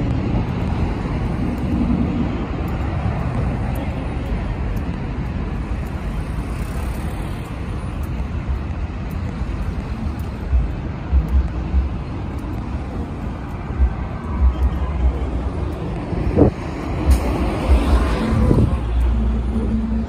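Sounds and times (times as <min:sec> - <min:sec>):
cars passing on road: 0:00.0 - 0:20.0.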